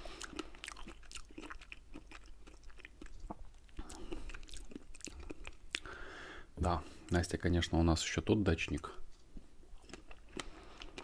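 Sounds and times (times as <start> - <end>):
chewing with mouth clicks: 0.0 - 5.9, 8.7 - 11.0.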